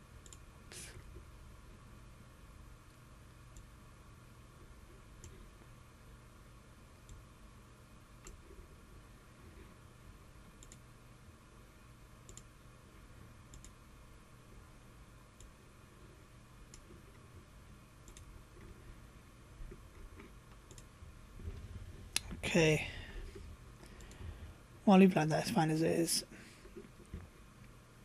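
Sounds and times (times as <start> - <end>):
low hum: 0.0 - 28.0
computer mouse clicks: 0.2 - 1.1, 5.2 - 5.4, 7.0 - 7.3, 8.2 - 8.4, 10.6 - 10.9, 12.2 - 12.5, 13.5 - 13.8, 15.4 - 15.6, 16.7 - 17.1, 18.0 - 18.8, 20.2 - 20.9, 23.8 - 24.2.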